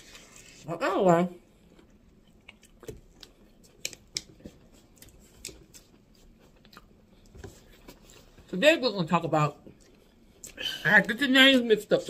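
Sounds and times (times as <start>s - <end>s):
person chewing food: 1.4s - 8.4s.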